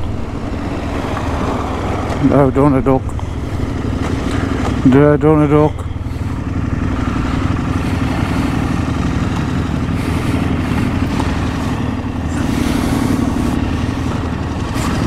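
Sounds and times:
motorcycle engine running: 0:00.0 - 0:15.0
road and wind noise: 0:00.0 - 0:15.0.

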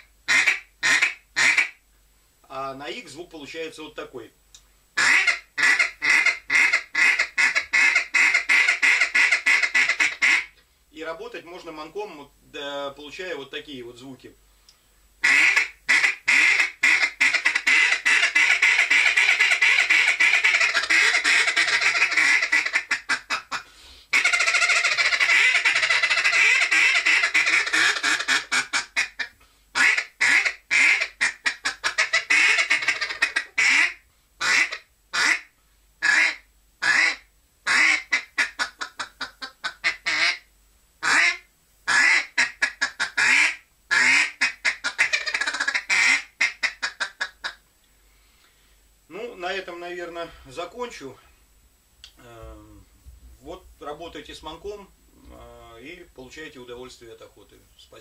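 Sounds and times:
duck call quacking: 0:00.0 - 0:01.8, 0:05.0 - 0:10.6, 0:15.2 - 0:47.6.

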